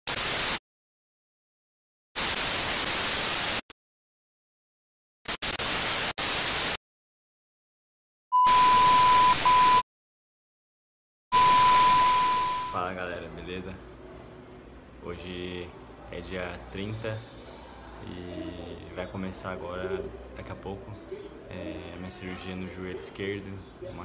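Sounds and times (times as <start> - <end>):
white noise static bursts: 0.1 - 0.6, 2.2 - 3.7, 5.3 - 6.8
test tone beep: 8.4 - 9.8, 11.3 - 12.8.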